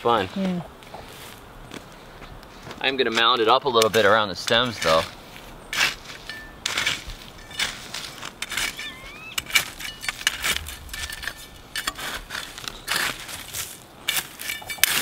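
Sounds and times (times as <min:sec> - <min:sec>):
machete scraping through soil: 0:04.8 - 0:15.0.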